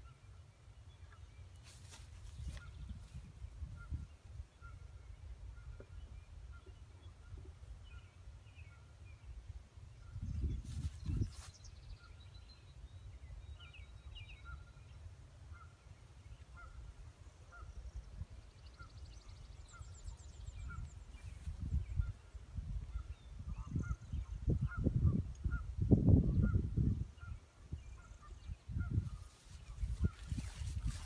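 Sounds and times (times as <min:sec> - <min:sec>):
wind rumbling on microphone: 0:01.8 - 0:12.3, 0:17.5 - 0:31.0.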